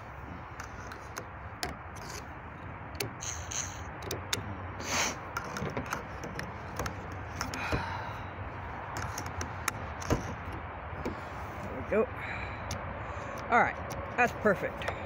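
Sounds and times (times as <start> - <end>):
clicks and scrapes on metal pole: 0.5 - 2.3.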